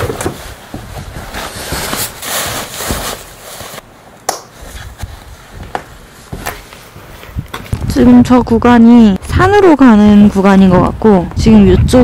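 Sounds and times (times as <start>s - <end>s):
footsteps: 0.0s - 3.8s, 4.4s - 8.2s
jacket and backpack rustling: 0.0s - 3.8s, 4.5s - 7.8s.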